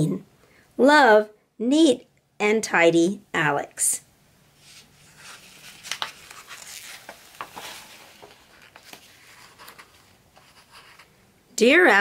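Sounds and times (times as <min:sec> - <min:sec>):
book page turning: 0:04.6 - 0:11.2.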